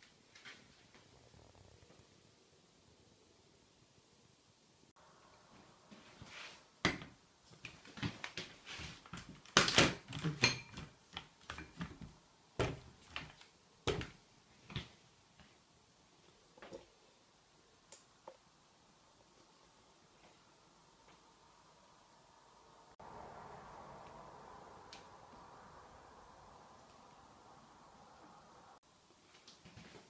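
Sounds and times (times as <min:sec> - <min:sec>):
bowls knocking and clattering: 0:10.2 - 0:11.9.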